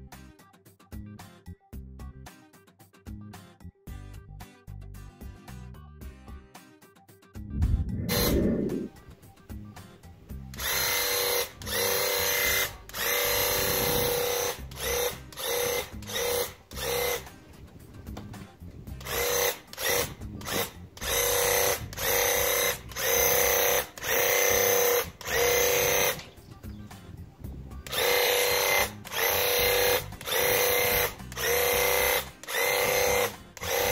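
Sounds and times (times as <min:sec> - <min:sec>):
paint sprayer pump bursts: 0:10.5 - 0:26.9, 0:27.8 - 0:33.9.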